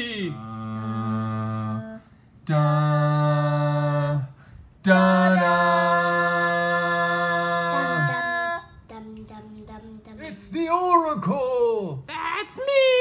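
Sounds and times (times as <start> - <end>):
person singing long notes: 4.8 - 8.7.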